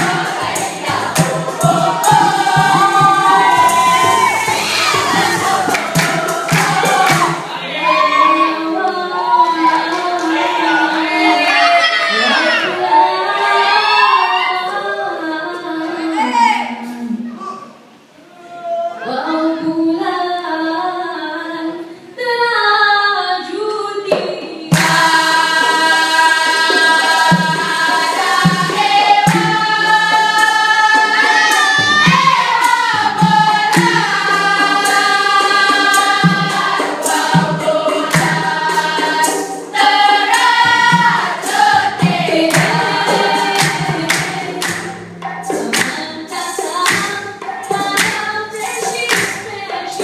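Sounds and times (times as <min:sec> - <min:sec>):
several voices singing: 0:00.0 - 0:20.5, 0:24.4 - 0:50.0
steady beat of sharp taps: 0:04.8 - 0:07.4, 0:31.8 - 0:46.0, 0:46.8 - 0:49.6
woman singing into a microphone: 0:08.1 - 0:17.5, 0:18.9 - 0:26.9, 0:45.5 - 0:50.0.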